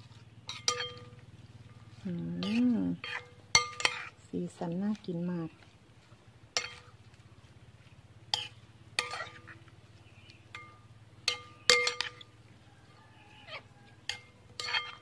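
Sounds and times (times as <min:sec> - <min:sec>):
metal spoon clinking against bowl: 0:00.5 - 0:01.2, 0:02.4 - 0:04.2, 0:06.6 - 0:06.9, 0:08.3 - 0:09.6, 0:10.5 - 0:12.3, 0:14.0 - 0:15.0.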